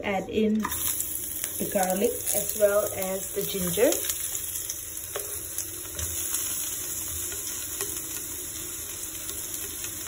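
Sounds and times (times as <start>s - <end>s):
food sizzling in hot oil: 0.2s - 10.0s
spatula tapping wok: 7.1s - 8.4s.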